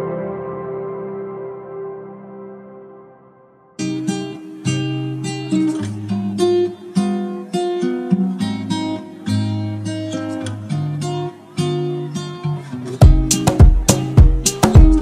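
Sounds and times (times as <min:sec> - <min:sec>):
acoustic guitar picking: 0:03.8 - 0:15.0.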